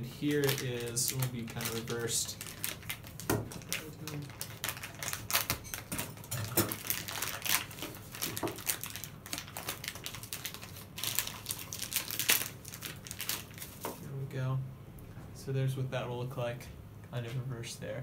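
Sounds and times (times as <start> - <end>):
plastic wrapping crinkling: 0.0 - 14.0.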